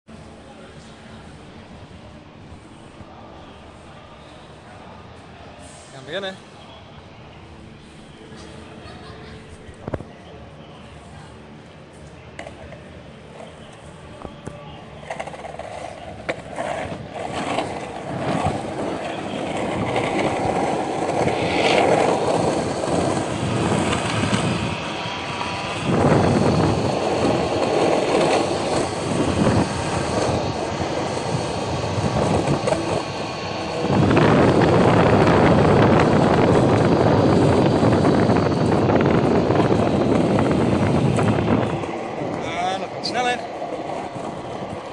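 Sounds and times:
skateboard wheels rolling on asphalt: 11.0 - 44.9.

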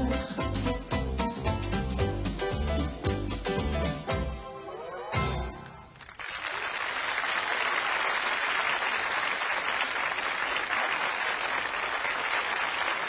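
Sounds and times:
large audience applauding: 5.9 - 13.0.

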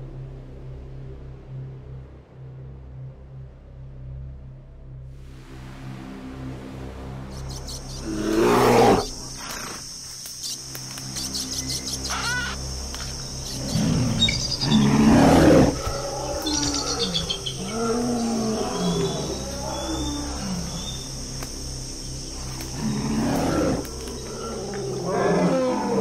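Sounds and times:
low drone: 0.0 - 26.0
animal roar: 8.0 - 9.1, 13.6 - 21.0, 22.7 - 26.0
wavering animal calls: 11.3 - 21.2, 22.7 - 26.0
short chirping calls: 13.3 - 15.1.

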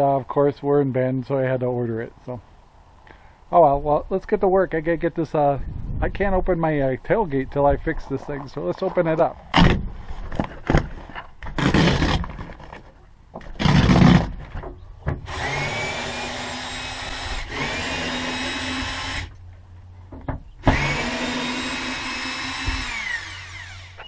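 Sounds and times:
rustling and handling noise: 7.8 - 13.6
cordless drill whining: 15.3 - 19.3, 20.6 - 24.0.

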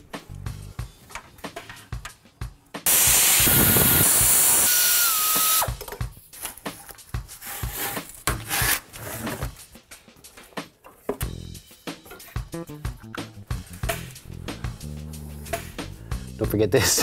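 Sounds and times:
background music: 0.0 - 17.0
pneumatic air tool hissing: 2.9 - 5.8.

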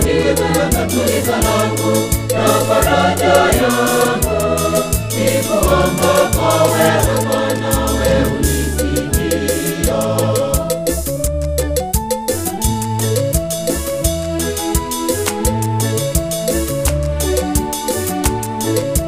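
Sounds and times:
choir singing gospel: 0.0 - 11.4
percussion beat: 0.0 - 19.0
bass line: 3.6 - 14.7.

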